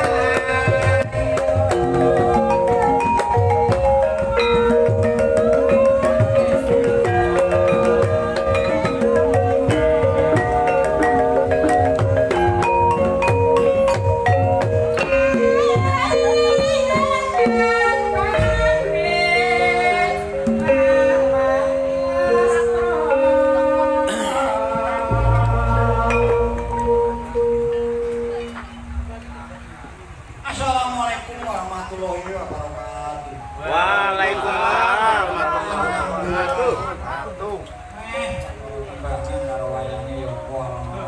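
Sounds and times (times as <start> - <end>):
wavering high melodic line: 0.0 - 20.1, 21.2 - 29.8
metallophones playing: 0.0 - 30.2.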